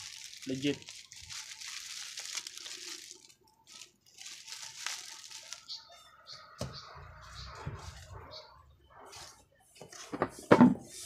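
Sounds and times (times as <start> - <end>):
plastic bag crinkling: 0.0 - 6.4, 7.2 - 8.2.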